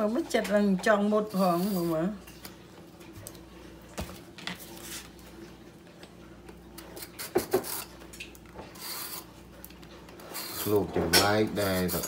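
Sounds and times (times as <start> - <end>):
vegetable peeler scraping: 8.8 - 9.3, 10.2 - 10.9.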